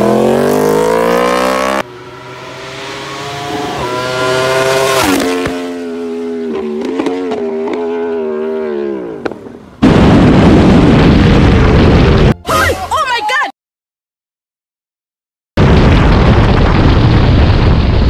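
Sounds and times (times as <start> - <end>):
motorcycle passing by: 0.0 - 9.6
motorcycle engine at speed: 0.0 - 9.7.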